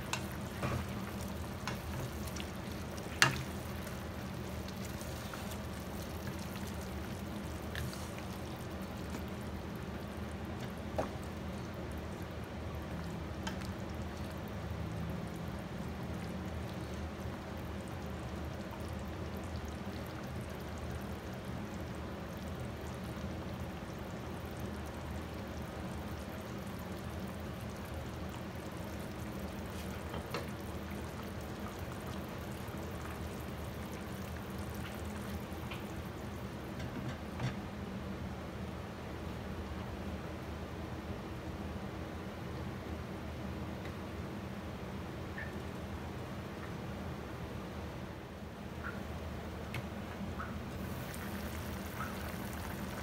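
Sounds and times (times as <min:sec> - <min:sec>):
sauce bubbling in a pan: 0:00.0 - 0:36.9, 0:50.4 - 0:53.0.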